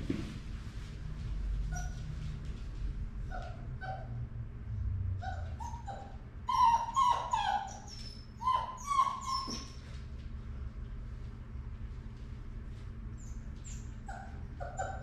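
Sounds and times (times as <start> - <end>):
puppy whimpering: 5.2 - 9.8, 13.2 - 15.0.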